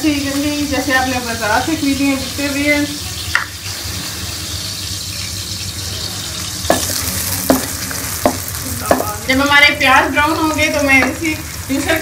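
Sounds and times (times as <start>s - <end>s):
onions sizzling in hot fat: 0.0s - 12.0s
wooden spoon knocking on pan: 6.7s - 9.3s.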